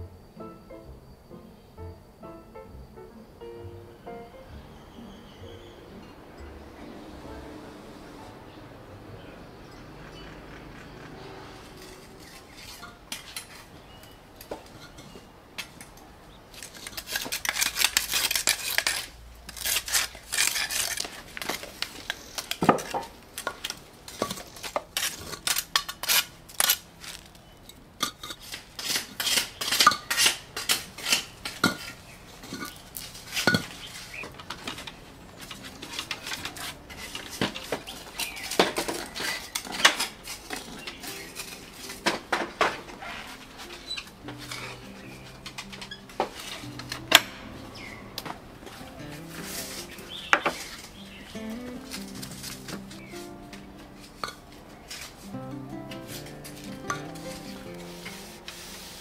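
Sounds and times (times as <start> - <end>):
garden tool scraping soil: 11.1 - 14.0, 16.6 - 42.1, 42.9 - 48.0, 48.7 - 53.4, 56.0 - 59.0.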